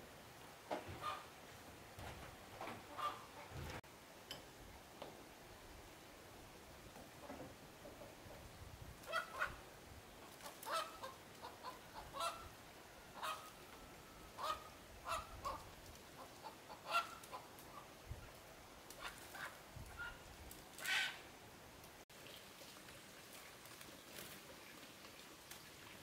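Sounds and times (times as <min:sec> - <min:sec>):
poultry calling: 0:00.9 - 0:01.3, 0:02.9 - 0:03.7, 0:10.6 - 0:12.5, 0:13.2 - 0:13.6, 0:14.3 - 0:15.6, 0:16.2 - 0:17.8.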